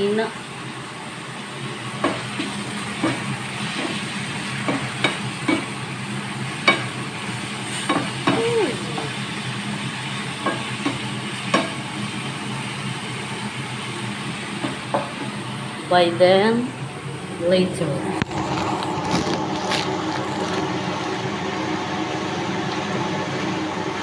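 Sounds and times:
chicken sizzling in a pan: 0:00.0 - 0:24.0
spatula knocking and scraping pan: 0:02.0 - 0:05.7, 0:06.6 - 0:07.0, 0:07.8 - 0:09.1, 0:10.4 - 0:11.8.

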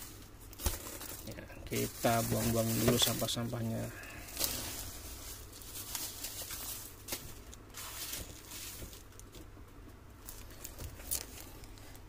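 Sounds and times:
packaging rustling and crinkling: 0:00.0 - 0:09.6, 0:10.2 - 0:12.0.

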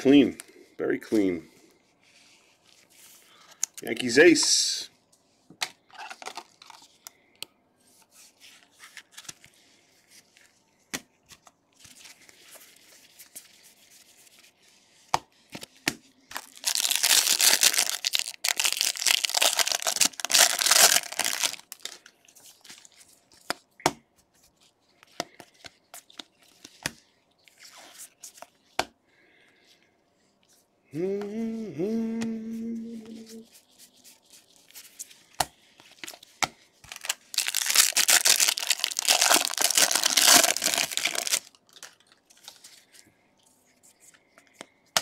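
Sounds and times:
foil wrapper ripping and crinkling: 0:16.3 - 0:22.1, 0:36.8 - 0:42.7.

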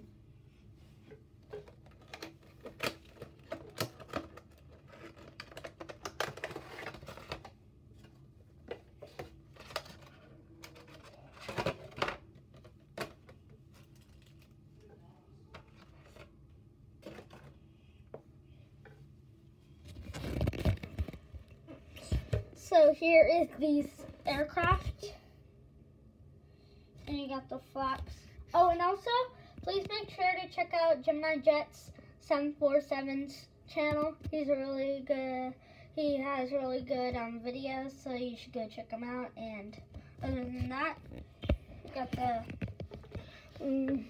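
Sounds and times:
clicks and taps of packaging: 0:01.1 - 0:14.4.

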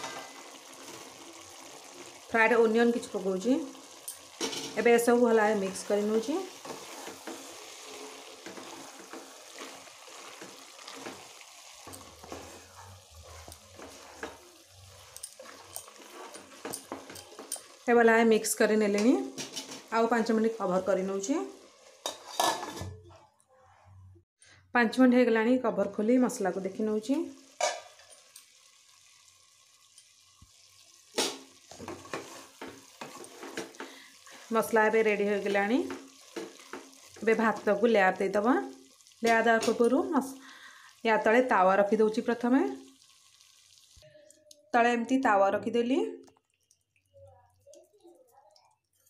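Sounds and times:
vegetables sizzling in oil: 0:00.0 - 0:22.8, 0:25.8 - 0:44.1
spatula scraping a pot: 0:06.5 - 0:17.8, 0:21.9 - 0:22.9, 0:31.7 - 0:34.5
metal ladle clattering in a pot: 0:22.0 - 0:23.0, 0:27.6 - 0:28.2.

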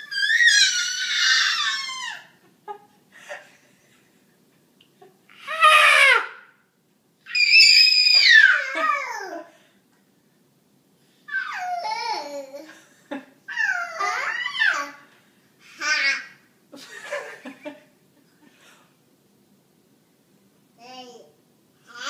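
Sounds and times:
toddler screaming: 0:00.0 - 0:02.4, 0:05.4 - 0:06.5, 0:07.3 - 0:09.4, 0:11.3 - 0:12.2, 0:13.5 - 0:15.0.

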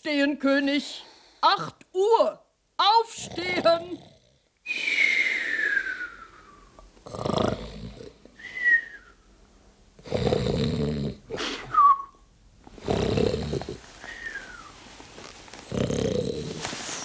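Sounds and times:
man snoring: 0:07.0 - 0:08.2, 0:10.0 - 0:11.4, 0:12.8 - 0:13.8, 0:15.7 - 0:16.6.

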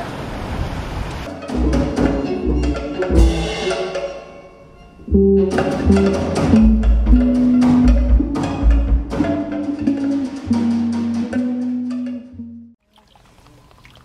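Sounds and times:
band music: 0:01.3 - 0:12.8
bass line: 0:01.5 - 0:03.6, 0:05.1 - 0:12.8
clicking percussion: 0:05.2 - 0:12.6.

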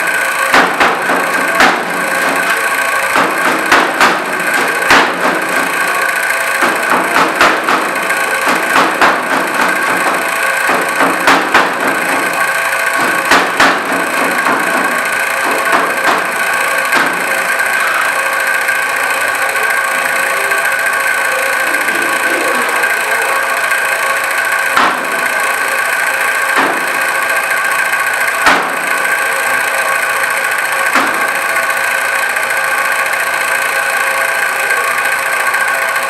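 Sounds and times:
steady mechanical hum: 0:00.0 - 0:36.0.

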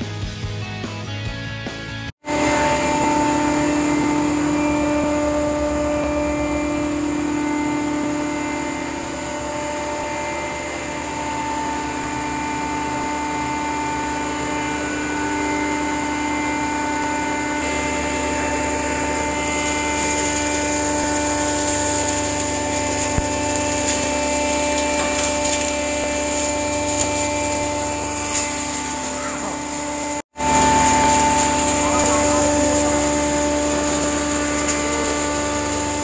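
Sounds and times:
machine motor humming and whining: 0:02.2 - 0:36.0
high hiss: 0:17.6 - 0:36.0.

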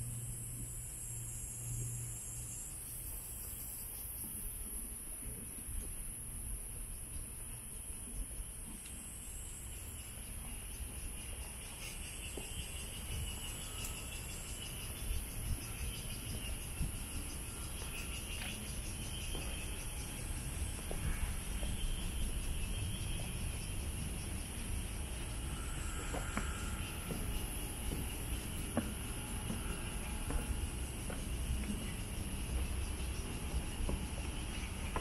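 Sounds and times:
continuous low rumble: 0:00.0 - 0:35.0
pulsing insect call: 0:00.0 - 0:35.0
high-pitched insect buzz: 0:09.0 - 0:35.0.

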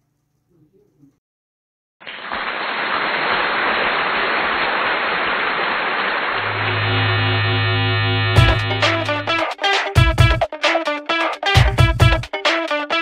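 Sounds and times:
music with sustained low note: 0:06.4 - 0:09.4.

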